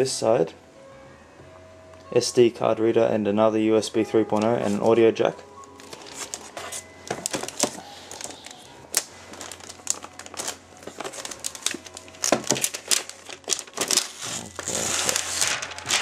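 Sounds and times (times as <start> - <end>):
plastic wrapping crinkling: 5.6 - 16.0.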